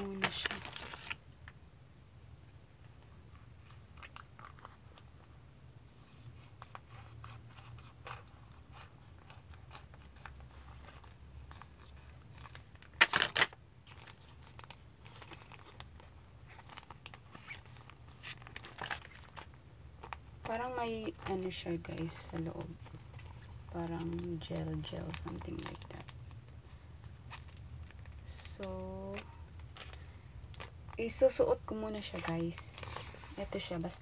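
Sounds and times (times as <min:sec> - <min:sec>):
loud crinkle: 0:09.7 - 0:20.4
material rustling: 0:13.8 - 0:34.0.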